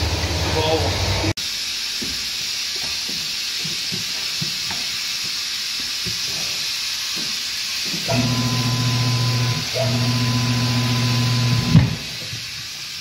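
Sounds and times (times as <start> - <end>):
steady hissing: 0.5 - 13.0.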